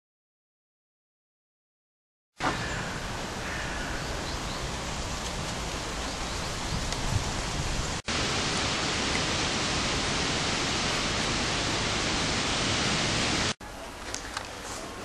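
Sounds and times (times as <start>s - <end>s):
steady rushing hiss: 2.5s - 13.6s.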